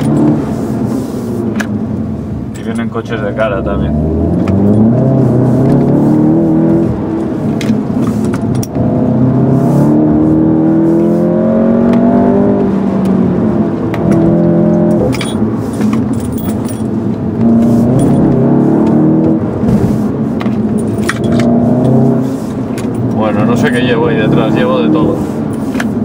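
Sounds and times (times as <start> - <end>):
car engine revving under load: 0.0 - 26.0
keys jangling: 14.9 - 17.1, 17.9 - 18.3, 20.6 - 22.0.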